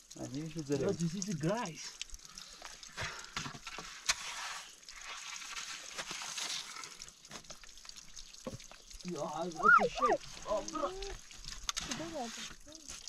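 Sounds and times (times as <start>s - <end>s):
hands scraping in snow and grit: 3.9s - 6.8s.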